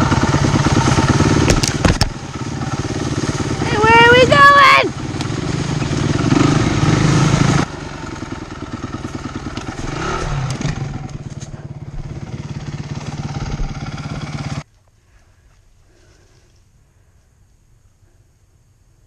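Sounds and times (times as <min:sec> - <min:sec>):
dirt bike engine revving: 0:00.0 - 0:14.6.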